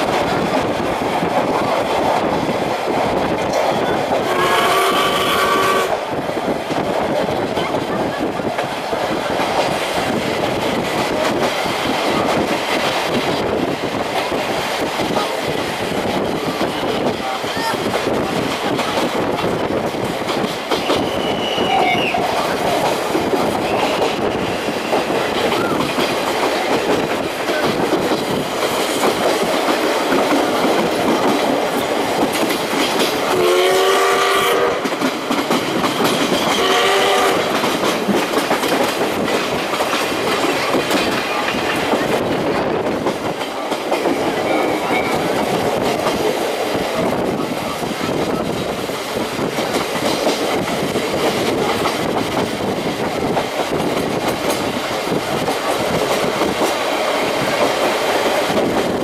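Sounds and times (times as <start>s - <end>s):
train running noise: 0.0s - 59.0s
steam whistle blasts: 4.2s - 6.0s, 21.0s - 22.2s, 33.3s - 34.8s, 36.6s - 37.4s.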